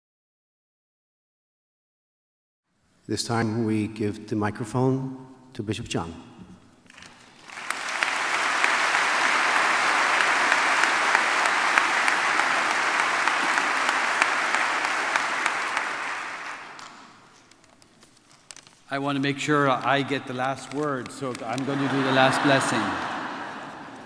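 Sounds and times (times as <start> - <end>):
crowd applauding: 6.9 - 17.2, 19.8 - 24.0.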